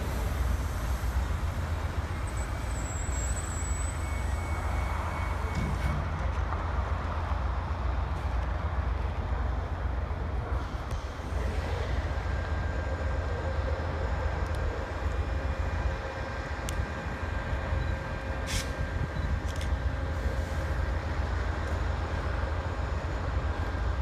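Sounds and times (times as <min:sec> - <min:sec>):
diesel train rumble: 0:00.0 - 0:24.0
faint steady whine: 0:07.4 - 0:24.0.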